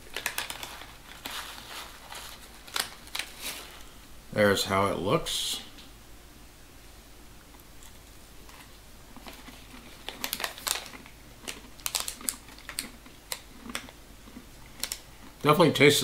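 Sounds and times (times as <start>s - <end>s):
nuts crunching: 0.0s - 3.9s, 7.8s - 15.4s
snack pouch crinkling: 0.0s - 3.9s, 7.8s - 15.4s.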